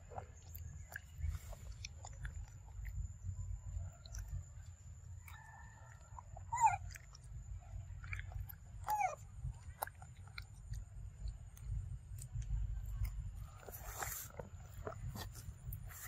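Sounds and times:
monkey chewing fruit: 0:00.0 - 0:16.0.

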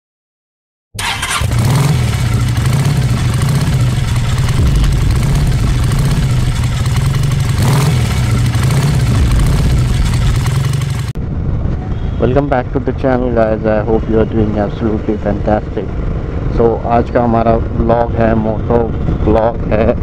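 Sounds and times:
motorcycle engine starting and revving: 0:01.0 - 0:11.2.

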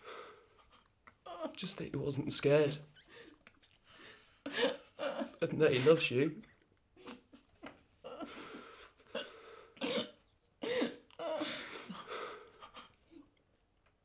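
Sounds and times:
person sobbing and gasping: 0:00.0 - 0:01.6, 0:04.0 - 0:06.1, 0:07.0 - 0:13.3.

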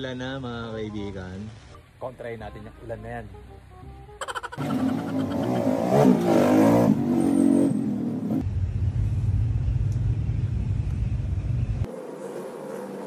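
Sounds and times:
car engine revving: 0:04.6 - 0:08.4.

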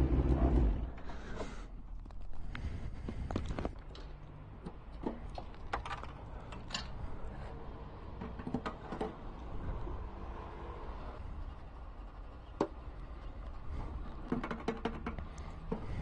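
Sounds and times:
low steady rumble: 0:09.2 - 0:14.4.

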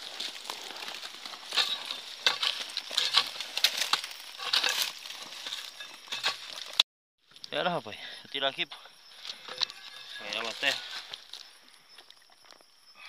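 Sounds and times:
metal tool scraping soil: 0:00.0 - 0:06.8, 0:09.2 - 0:11.4
leaves rustling: 0:00.0 - 0:07.4, 0:09.1 - 0:11.7.

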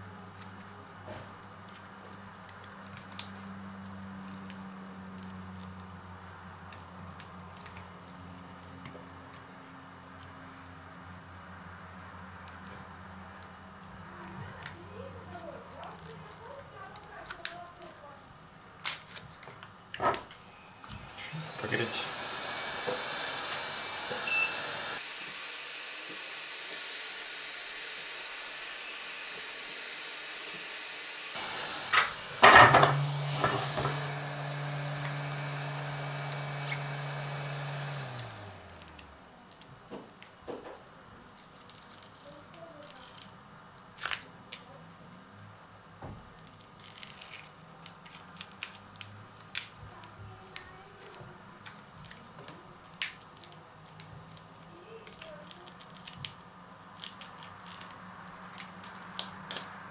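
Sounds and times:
fan humming: 0:20.0 - 0:39.4
hot-air gun hissing: 0:20.9 - 0:39.0.

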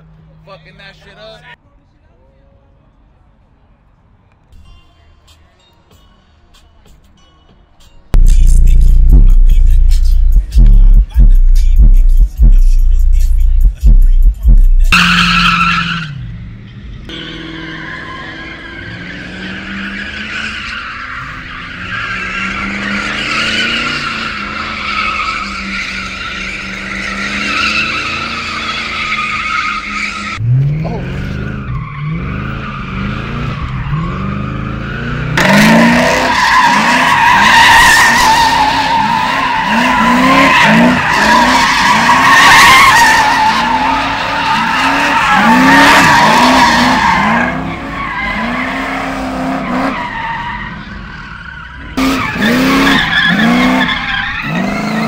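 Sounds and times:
car engine revving: 0:08.2 - 0:51.1, 0:51.8 - 0:55.0
tyres squealing: 0:17.3 - 0:55.0.

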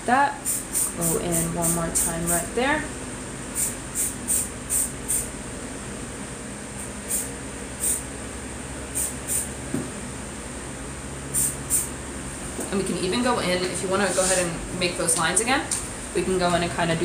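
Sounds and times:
spray paint can hissing: 0:00.4 - 0:02.1, 0:03.6 - 0:05.3, 0:07.1 - 0:08.0, 0:09.0 - 0:09.5, 0:11.3 - 0:11.9.

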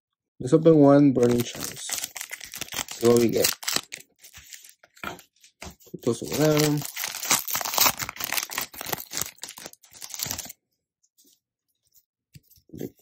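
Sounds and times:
foil wrapper tearing and crinkling: 0:01.2 - 0:04.9, 0:06.2 - 0:10.6.

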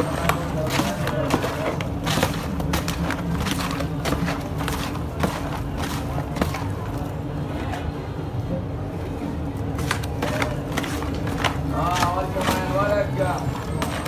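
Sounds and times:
faint voices: 0:04.8 - 0:14.0.

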